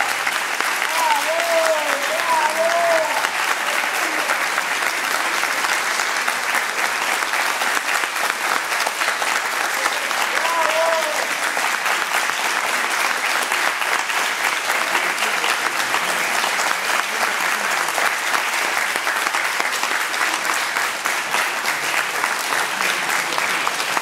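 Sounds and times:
audience applauding: 0.0s - 24.0s.

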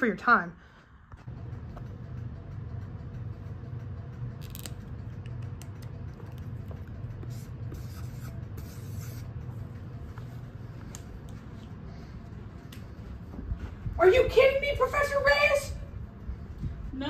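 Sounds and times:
steady low hum: 0.0s - 17.0s
marker scratching on paper: 7.2s - 9.5s.

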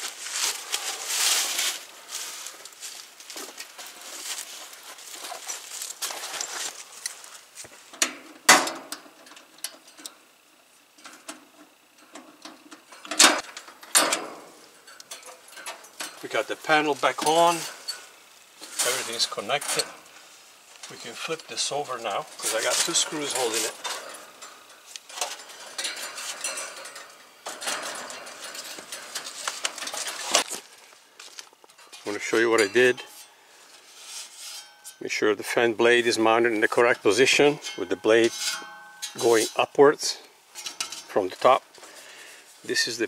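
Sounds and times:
metal and tool clicks: 12.0s - 18.1s, 18.8s - 20.1s, 22.4s - 30.6s, 36.9s - 39.8s, 40.5s - 41.3s
sheet metal clanking and rattling: 22.4s - 30.4s.

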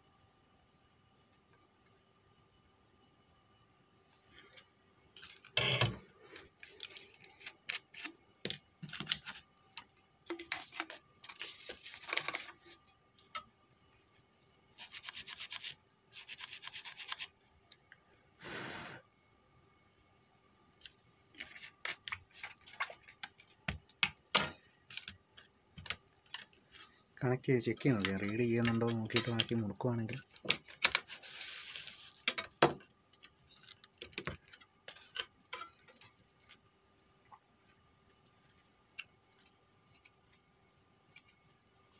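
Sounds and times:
stiff brush scrubbing circuit board: 14.8s - 17.3s.

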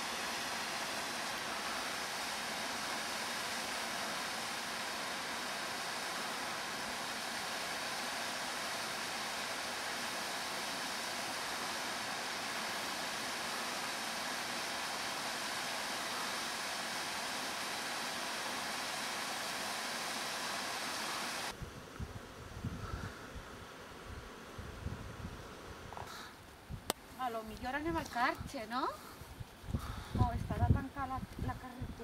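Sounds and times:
waterfall rushing: 0.0s - 21.5s.

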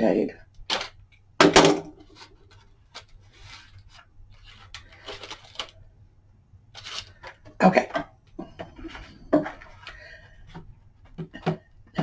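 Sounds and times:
parchment rustling and crackling: 2.0s - 5.8s, 6.7s - 7.5s.

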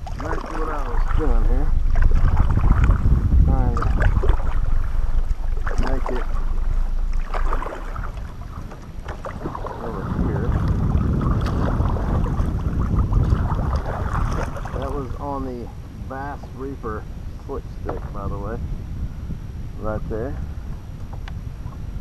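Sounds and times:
kayak paddle splashing water: 0.0s - 15.2s
wind buffeting microphone: 0.0s - 22.0s.

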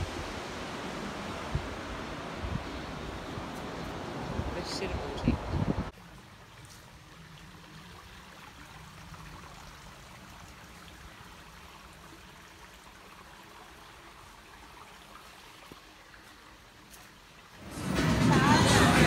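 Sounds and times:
creek trickling over rocks: 5.9s - 17.8s.

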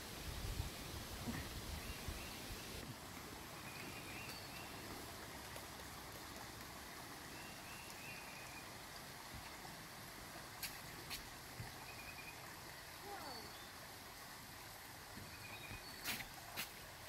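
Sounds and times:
creek trickling: 0.0s - 17.0s.

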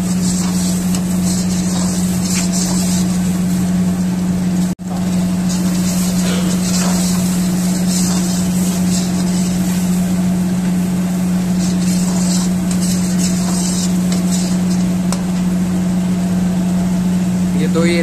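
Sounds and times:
gravy hissing and sizzling in pan: 0.0s - 3.7s, 4.9s - 10.2s, 11.2s - 15.1s
kitchen machine hum: 0.0s - 18.0s.

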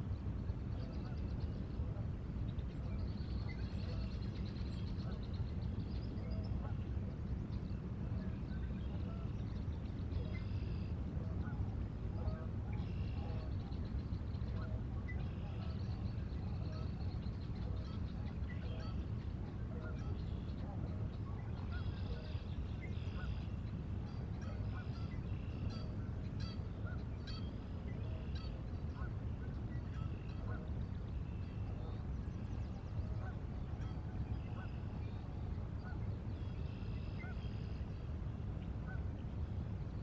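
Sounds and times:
wind and water rumble: 0.0s - 40.0s.

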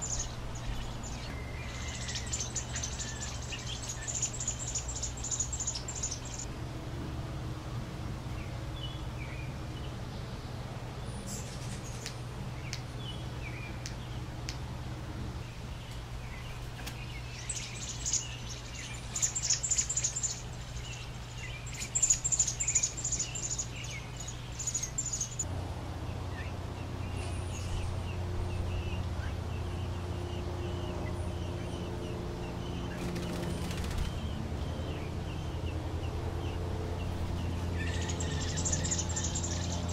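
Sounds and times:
nestlings chirping: 0.0s - 6.5s, 15.8s - 25.5s, 36.4s - 39.9s
steady low hum: 0.0s - 39.9s.

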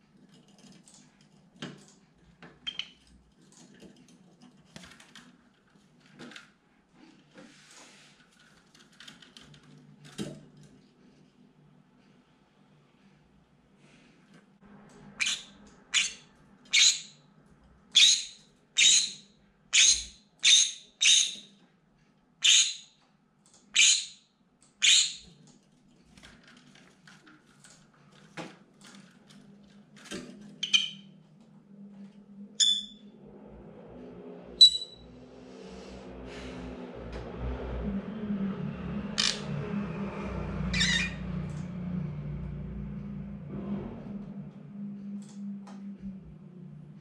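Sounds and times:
parrot shrieking: 15.2s - 17.2s, 18.0s - 21.4s, 22.4s - 22.8s, 23.8s - 24.2s, 24.8s - 25.2s, 40.7s - 41.2s.

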